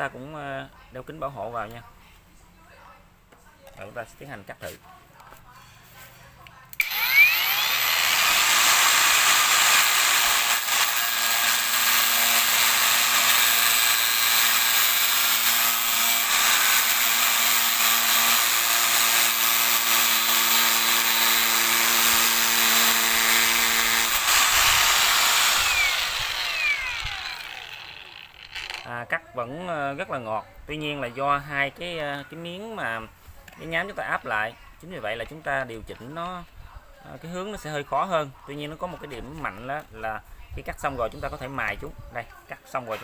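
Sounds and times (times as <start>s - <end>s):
angle grinder cutting pipe: 6.8s - 28.9s.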